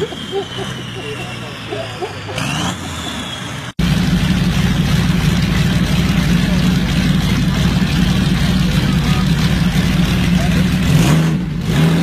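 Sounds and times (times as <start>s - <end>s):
diesel tractor engine: 0.0s - 12.0s
motorcycle engine running loud: 3.8s - 12.0s.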